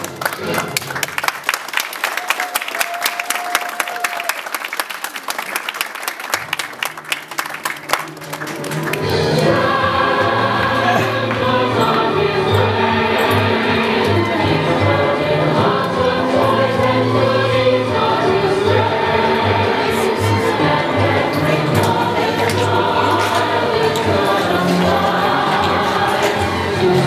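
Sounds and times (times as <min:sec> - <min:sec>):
audience clapping: 0:00.0 - 0:09.6, 0:21.4 - 0:25.1
recorded choir music: 0:08.2 - 0:27.0.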